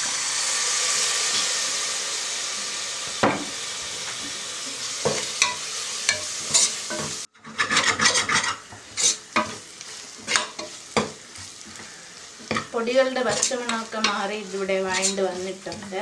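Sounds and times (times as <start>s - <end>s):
masala sizzling in hot oil: 0.0s - 16.0s
spatula scraping a pot: 6.1s - 16.0s.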